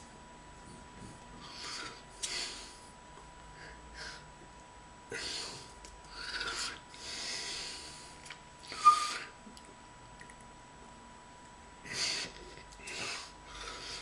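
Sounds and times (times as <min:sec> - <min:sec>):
breath hissing: 0:05.1 - 0:09.4.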